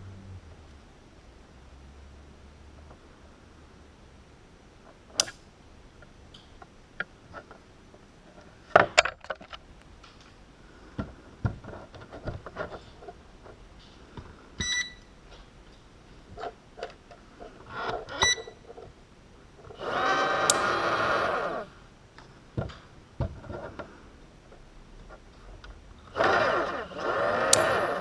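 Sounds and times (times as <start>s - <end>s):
small parts clicking and knocking: 6.0s - 10.4s, 19.6s - 28.0s
clatter of parts: 8.3s - 10.4s
short electronic beep: 14.6s - 15.0s.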